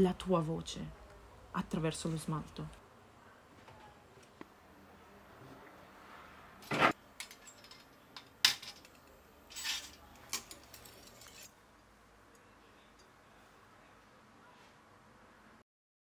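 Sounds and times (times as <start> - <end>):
metal clinks and clacks: 7.2 - 11.5
metal scraping on stone: 9.5 - 11.6.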